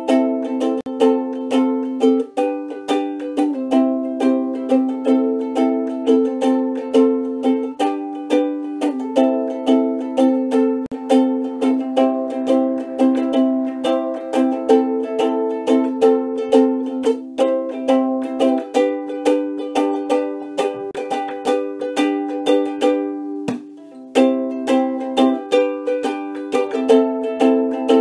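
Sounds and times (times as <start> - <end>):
ukulele strumming: 0.0 - 28.0.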